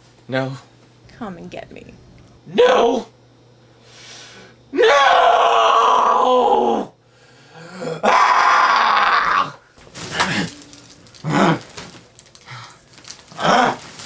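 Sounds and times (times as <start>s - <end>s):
man crying out: 7.8s - 9.6s.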